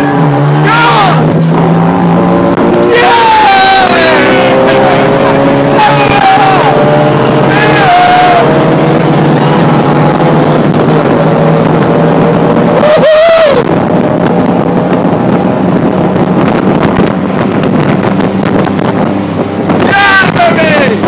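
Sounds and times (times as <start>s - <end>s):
tuk tuk engine running hard: 0.0s - 21.0s
wind and road noise: 0.0s - 21.0s
person shouting: 0.6s - 1.3s, 2.8s - 4.8s, 5.7s - 8.6s, 12.8s - 13.6s, 19.8s - 21.0s.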